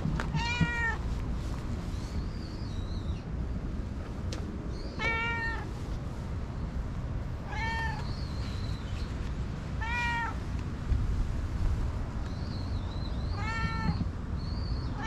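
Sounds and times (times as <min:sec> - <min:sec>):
cat meowing: 0:00.3 - 0:01.0, 0:05.0 - 0:05.7, 0:07.5 - 0:08.1, 0:09.8 - 0:10.4, 0:13.3 - 0:14.1.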